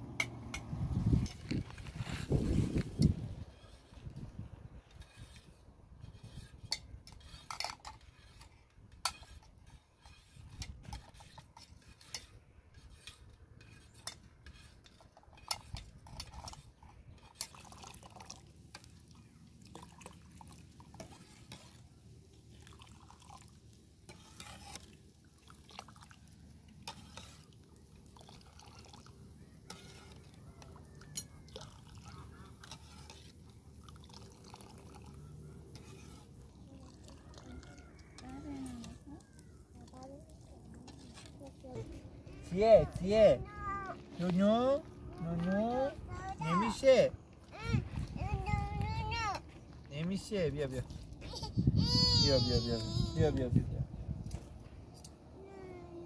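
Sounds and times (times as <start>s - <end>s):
metal ladle scraping metal pot: 0.0s - 23.2s, 24.0s - 39.4s, 40.4s - 44.4s
soup pouring: 17.2s - 38.2s.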